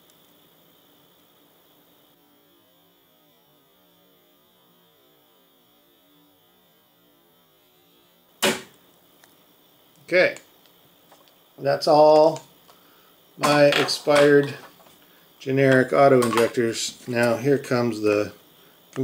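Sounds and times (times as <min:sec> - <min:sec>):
faint electrical hum: 0:00.0 - 0:19.0
autoinjector spring snap: 0:08.4 - 0:08.8.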